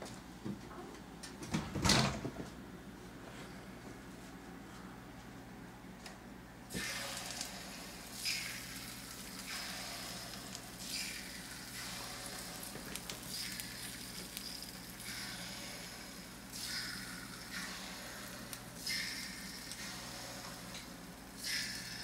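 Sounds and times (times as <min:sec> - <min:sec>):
batter sizzling in hot fat: 0:06.7 - 0:22.0.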